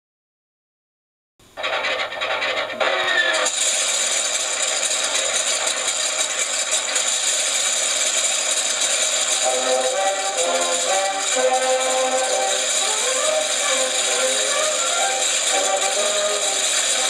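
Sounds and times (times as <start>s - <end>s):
model aircraft engine sound: 1.6s - 17.0s
steady stepped tones: 8.0s - 17.0s.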